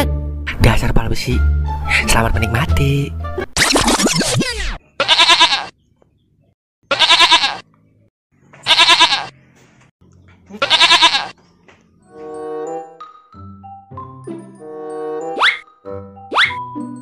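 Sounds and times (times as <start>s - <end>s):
goat bleating: 4.9s - 5.8s, 6.9s - 7.7s, 8.6s - 9.4s, 10.4s - 11.4s.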